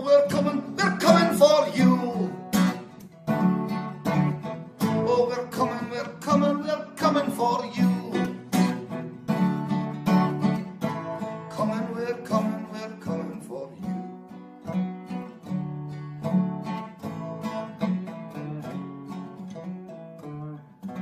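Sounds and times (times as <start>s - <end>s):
acoustic guitar strumming: 0.0s - 21.0s.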